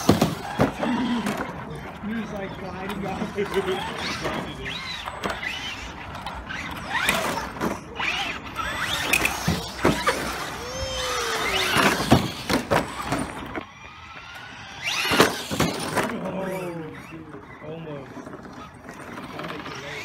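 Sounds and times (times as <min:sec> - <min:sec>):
toy truck chassis clattering: 0:00.0 - 0:20.0
electric motor whine: 0:07.9 - 0:17.3.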